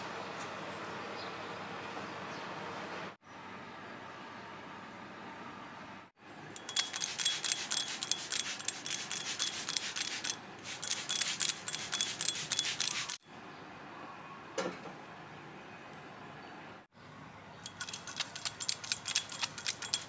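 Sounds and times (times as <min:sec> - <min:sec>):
plant mister spritzing: 0:06.6 - 0:13.2, 0:17.7 - 0:20.0.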